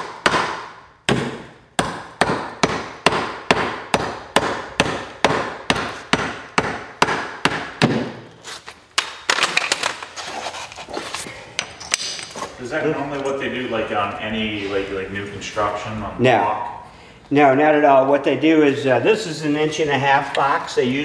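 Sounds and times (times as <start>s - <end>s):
hammer striking drywall: 0.0s - 8.3s.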